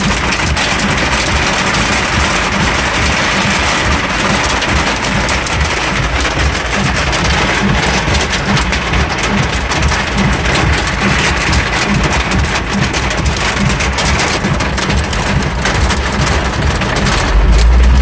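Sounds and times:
heavy rain on car roof: 0:00.0 - 0:18.0
low rumble: 0:00.0 - 0:18.0.

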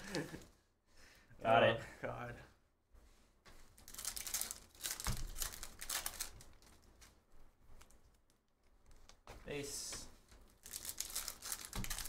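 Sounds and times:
foil wrappers crinkling: 0:03.8 - 0:07.2, 0:10.5 - 0:12.0.

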